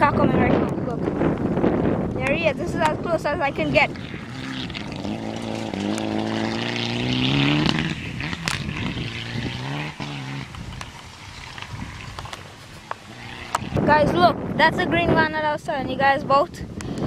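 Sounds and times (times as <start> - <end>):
rally car engine revving: 0.0 - 15.1
sharp engine crack: 2.4 - 13.9.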